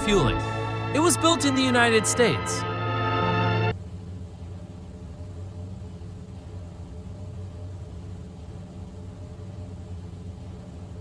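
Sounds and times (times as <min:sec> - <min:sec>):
airplane engines droning: 0:00.0 - 0:11.0.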